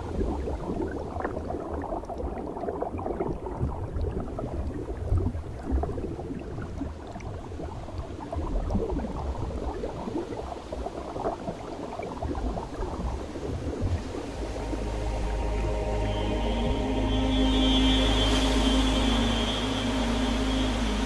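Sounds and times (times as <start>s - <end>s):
underwater bubbling and gurgling: 0.0s - 21.0s
low rumble: 13.8s - 21.0s.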